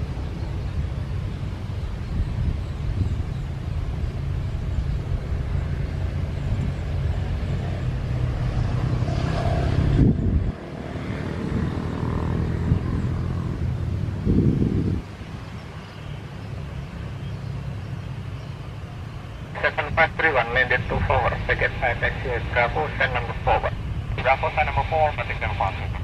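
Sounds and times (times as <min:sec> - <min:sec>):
distant jet airliner rumble: 0:00.0 - 0:26.0
motorcycle riding past: 0:05.7 - 0:15.0.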